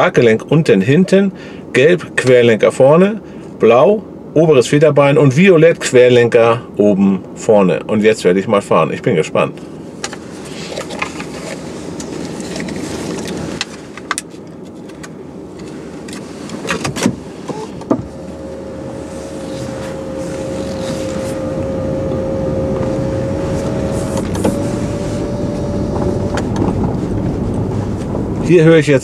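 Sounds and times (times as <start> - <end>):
electric car rolling noise: 17.4 - 28.6
electric motor whine: 17.5 - 27.0.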